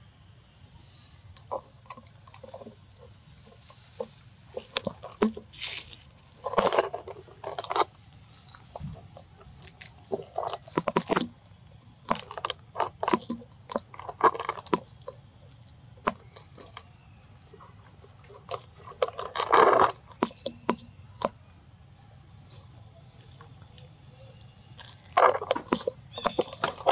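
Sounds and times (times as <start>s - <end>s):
monkeys crunching food: 1.4s - 21.4s, 22.1s - 26.9s
rustling crunch: 1.5s - 11.0s.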